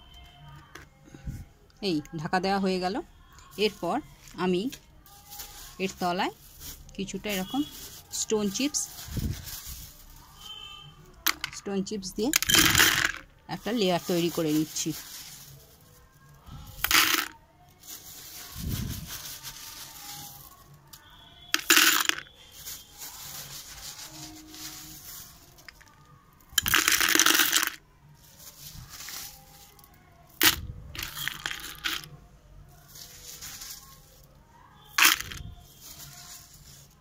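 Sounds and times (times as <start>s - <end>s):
stone chips clattering into tub: 12.4s - 13.2s, 16.8s - 17.3s, 21.5s - 22.8s, 26.6s - 27.8s, 34.9s - 36.8s.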